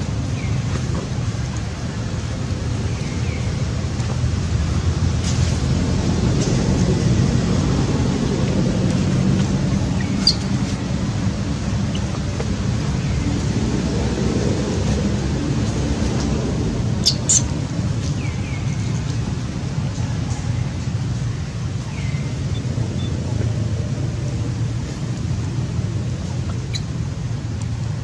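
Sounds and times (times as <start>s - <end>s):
low rumbling background noise: 0.0s - 28.0s
baby monkey squeaks: 10.1s - 10.5s.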